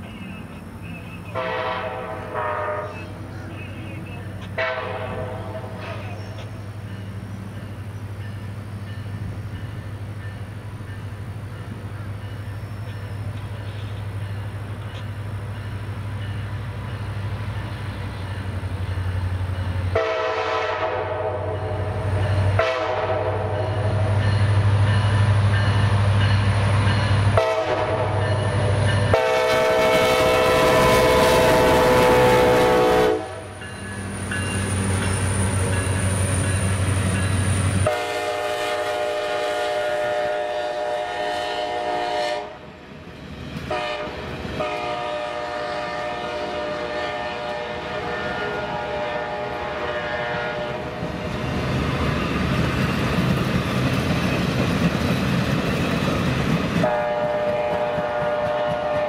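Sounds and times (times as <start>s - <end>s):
locomotive horn blasts: 1.3s - 3.2s, 4.4s - 5.8s, 19.9s - 21.9s, 22.5s - 24.0s, 27.3s - 28.3s, 29.1s - 33.4s, 37.8s - 42.6s, 43.7s - 51.0s, 56.8s - 59.0s.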